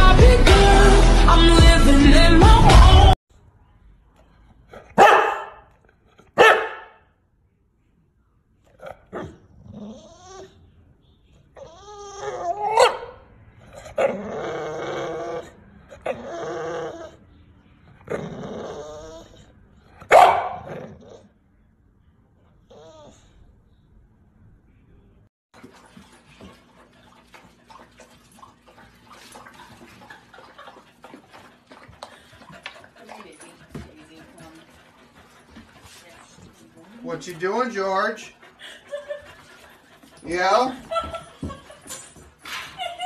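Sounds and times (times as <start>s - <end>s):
puppy lapping water: 25.6s - 41.6s
dog vocalizing: 26.4s - 41.3s.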